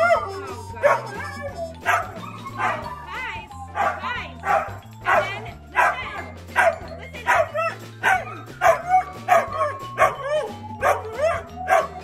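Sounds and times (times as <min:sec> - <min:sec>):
background music: 0:00.0 - 0:12.0
dog barking: 0:00.8 - 0:01.2, 0:01.8 - 0:02.9, 0:03.8 - 0:10.2, 0:10.8 - 0:12.0.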